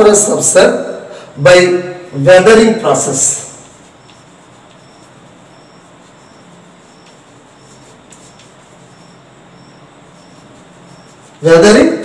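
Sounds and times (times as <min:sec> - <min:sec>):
faint low hum: 0:00.0 - 0:12.0
cricket chirping: 0:03.2 - 0:11.8
chalk tapping on board: 0:03.5 - 0:11.5.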